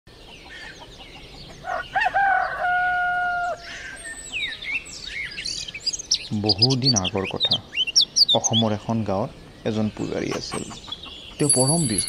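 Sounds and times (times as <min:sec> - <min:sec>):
small birds chirping: 0:00.1 - 0:12.0
rooster crowing: 0:01.6 - 0:04.0.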